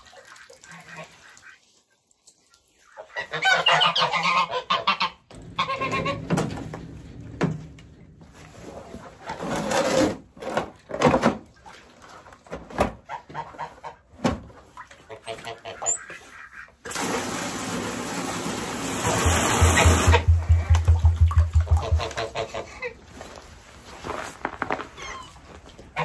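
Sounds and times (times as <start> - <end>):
poultry calling: 19.8 - 22.9.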